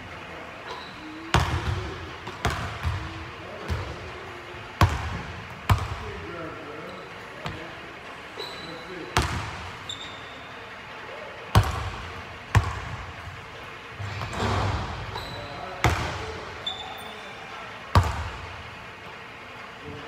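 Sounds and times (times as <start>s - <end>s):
basketball bouncing on hardwood floor: 4.8s - 6.0s, 11.6s - 13.0s, 14.2s - 16.2s.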